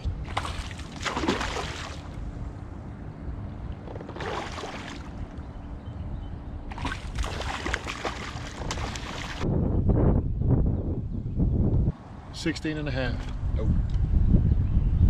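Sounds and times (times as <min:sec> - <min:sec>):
low steady rumble: 0:00.0 - 0:15.0
water splashing around a kayak: 0:00.2 - 0:02.2, 0:03.9 - 0:05.4, 0:06.7 - 0:09.4.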